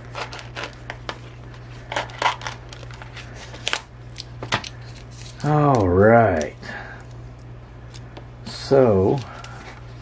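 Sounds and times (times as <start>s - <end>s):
plastic packaging crinkling: 0.0s - 6.5s.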